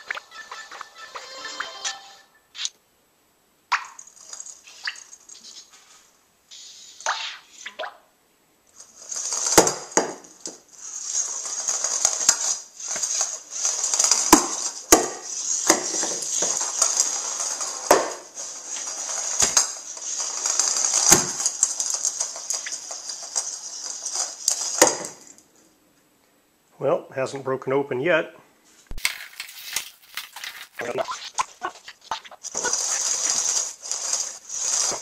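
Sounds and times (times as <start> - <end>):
plastic shell rolling on floor: 4.0 - 6.1, 8.7 - 25.5, 28.9 - 35.0.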